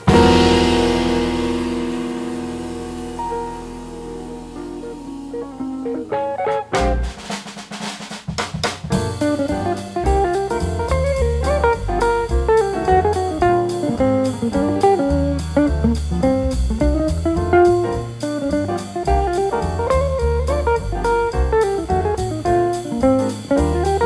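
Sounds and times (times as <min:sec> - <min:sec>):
upbeat jazzy music: 0:00.0 - 0:24.0.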